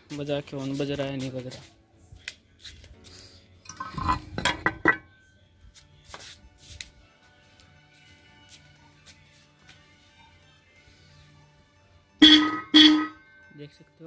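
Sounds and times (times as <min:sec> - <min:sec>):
faint music: 0:00.0 - 0:14.0
electric horn blips: 0:12.2 - 0:13.2.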